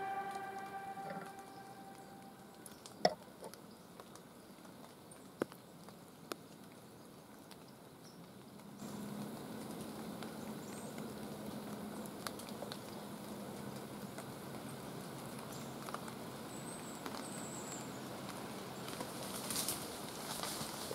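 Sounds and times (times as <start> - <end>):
low hum with hiss: 0.0 - 4.6.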